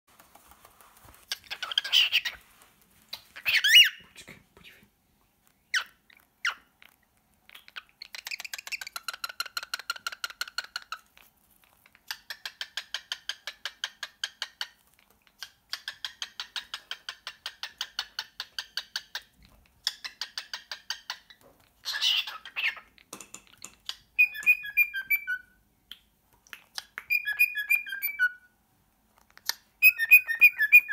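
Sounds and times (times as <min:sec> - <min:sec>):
cockatiel chattering: 0:01.3 - 0:02.4
cockatiel whistling: 0:24.2 - 0:25.5, 0:27.0 - 0:28.5, 0:29.8 - 0:30.9.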